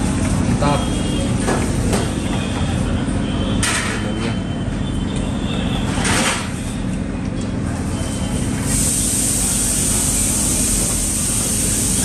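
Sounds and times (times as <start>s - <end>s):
short bursts of hiss: 8.6s - 12.0s.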